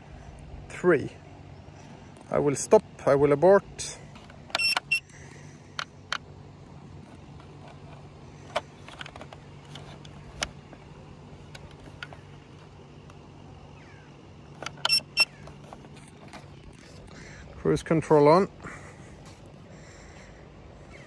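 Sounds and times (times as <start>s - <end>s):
steady low hum: 0.0s - 21.0s
remote control plastic clicks: 4.1s - 5.0s, 7.1s - 10.8s, 11.4s - 13.2s, 14.6s - 17.2s
short high-pitched beeps: 4.6s - 5.0s.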